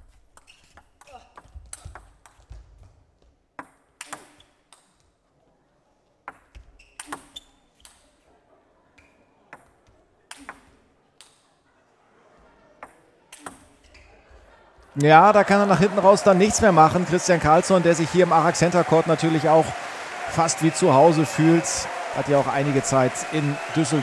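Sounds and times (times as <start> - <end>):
table tennis ball hits: 6.3 - 8.0.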